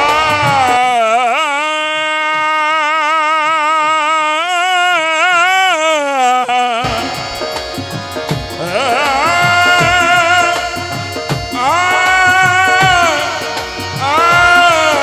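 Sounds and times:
drums: 0:00.0 - 0:01.3, 0:06.8 - 0:15.0
soft devotional backing music: 0:00.0 - 0:03.0, 0:03.8 - 0:15.0
man singing a long note: 0:00.0 - 0:07.6, 0:08.6 - 0:15.0.

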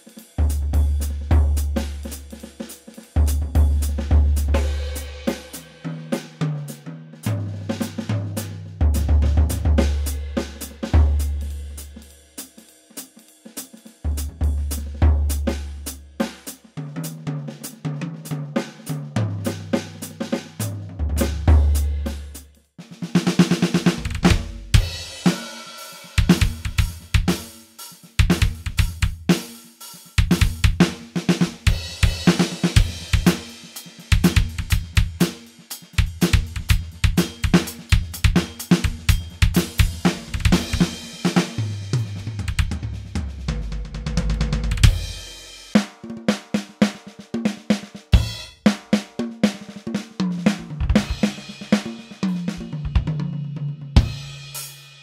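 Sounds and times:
electronic drum kit: 0:00.0 - 0:06.4, 0:18.6 - 0:22.4, 0:23.1 - 0:46.0, 0:46.8 - 0:55.0
low tom fills: 0:20.6 - 0:22.4, 0:23.2 - 0:25.5, 0:26.2 - 0:27.5, 0:36.0 - 0:45.5.

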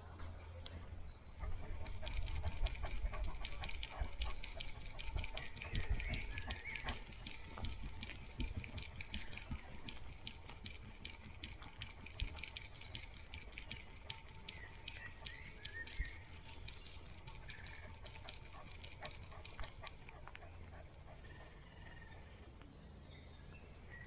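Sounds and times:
low rumble of movement: 0:00.0 - 0:23.3.

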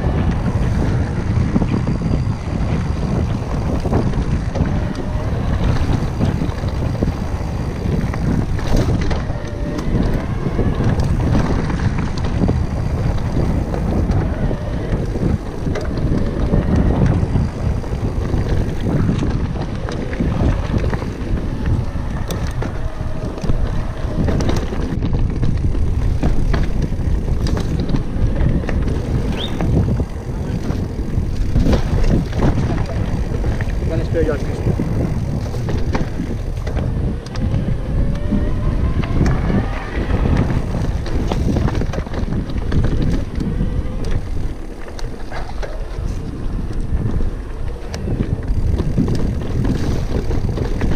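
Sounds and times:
bike rattling over rocky trail: 0:00.0 - 0:50.9
wind buffeting microphone: 0:00.0 - 0:50.9.

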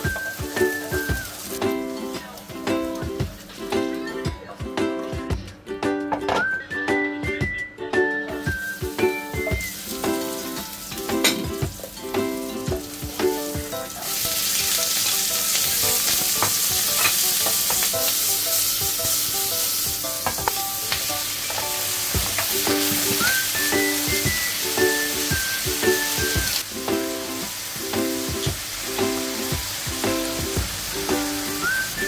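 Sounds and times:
garlic sizzling in oil: 0:00.0 - 0:04.2, 0:08.4 - 0:32.0
spatula scraping and tapping a pan: 0:10.9 - 0:11.7, 0:15.0 - 0:18.1, 0:20.2 - 0:23.4.

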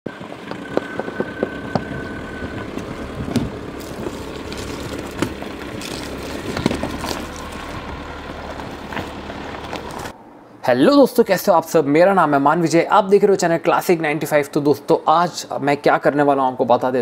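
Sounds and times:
diesel engine running: 0:00.1 - 0:10.1
stones crunching under tyres: 0:00.2 - 0:10.1.

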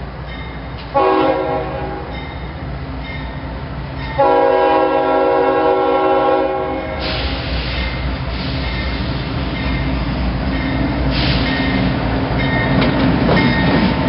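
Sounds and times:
train rushing: 0:00.0 - 0:14.0
locomotive horn blasts: 0:00.9 - 0:02.1, 0:04.2 - 0:07.0.

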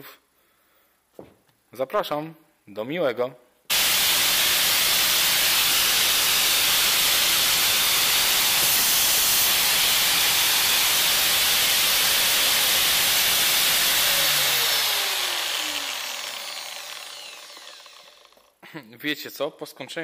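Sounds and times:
angle grinder running: 0:03.7 - 0:18.5.

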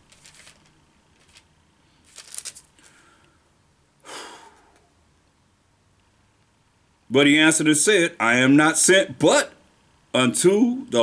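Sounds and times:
paper pages rustling: 0:00.0 - 0:03.0.

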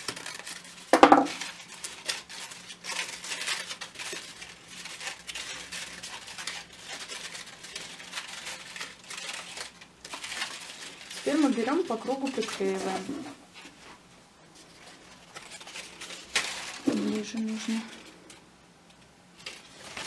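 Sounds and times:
crepe paper rustling: 0:00.0 - 0:18.4, 0:19.0 - 0:20.0.

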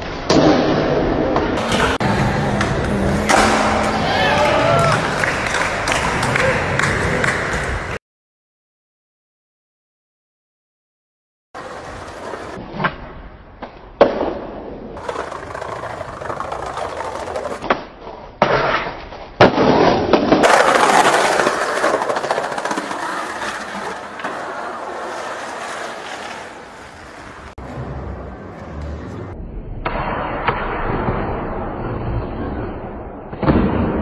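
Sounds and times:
skateboard wheels rolling on concrete: 0:11.6 - 0:19.2, 0:19.8 - 0:29.4.

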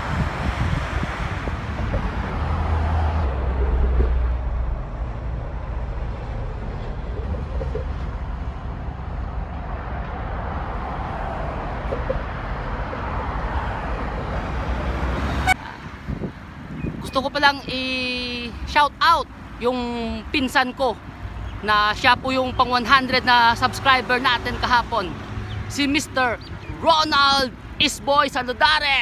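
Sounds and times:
cars rushing past on highway: 0:00.0 - 0:17.0, 0:18.2 - 0:28.6
heavy low rumble: 0:00.0 - 0:17.0.

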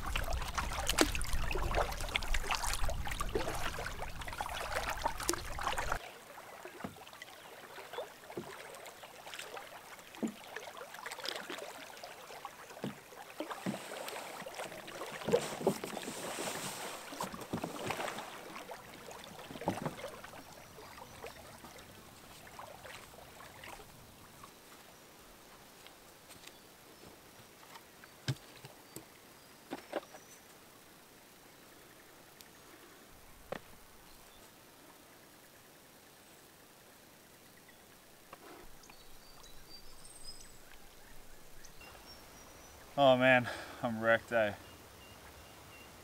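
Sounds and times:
paddle splashing in water: 0:00.0 - 0:25.9, 0:27.5 - 0:30.3
rush of wind and water: 0:00.0 - 0:46.0.

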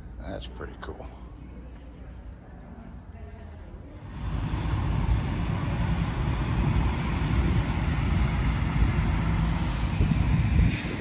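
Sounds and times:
diesel truck passing slowly: 0:04.0 - 0:11.0.

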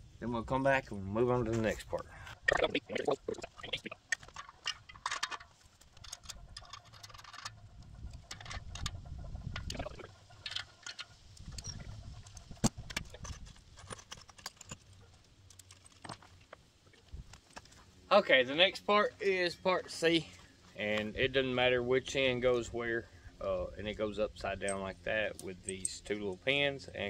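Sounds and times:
metal parts clinking: 0:03.7 - 0:08.9, 0:12.8 - 0:16.5.

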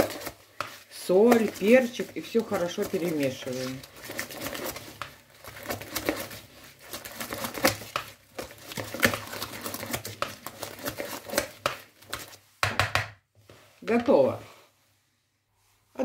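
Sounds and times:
whisk scraping a bowl: 0:00.0 - 0:12.6.

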